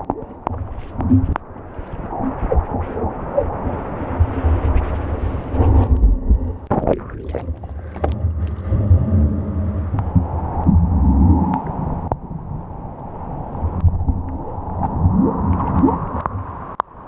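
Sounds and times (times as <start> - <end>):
surf water sloshing rumble: 0.0 - 17.0.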